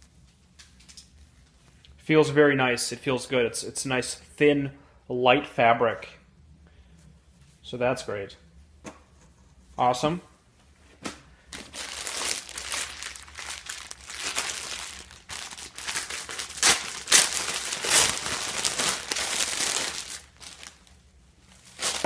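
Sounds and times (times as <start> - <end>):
plastic bags crinkling: 11.5 - 22.0.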